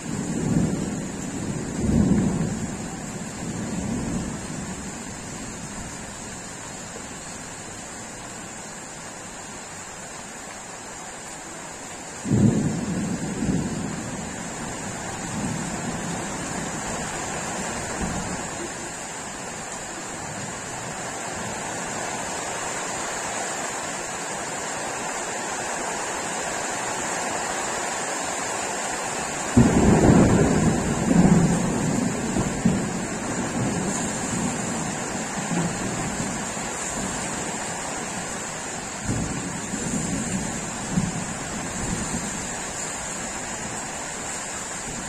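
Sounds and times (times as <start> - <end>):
rain hissing: 0.0 - 45.0
thunder clap rumbling: 0.1 - 5.0, 12.2 - 18.8, 29.6 - 37.6, 39.0 - 42.6.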